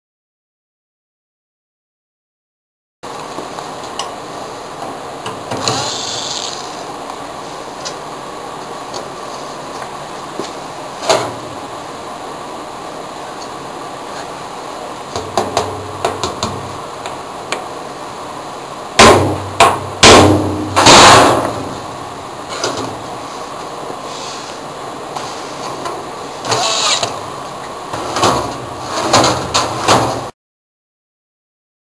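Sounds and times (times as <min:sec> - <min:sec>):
steady hiss: 0:03.1 - 0:15.2, 0:21.0 - 0:28.1
metal drawer clunks and scrapes: 0:22.5 - 0:23.0, 0:27.9 - 0:30.3.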